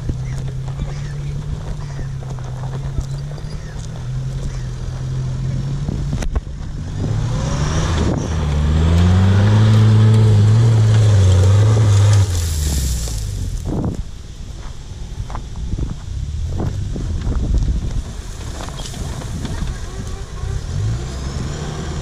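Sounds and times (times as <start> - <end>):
truck engine revving under load: 0.0 - 13.8, 16.3 - 22.0.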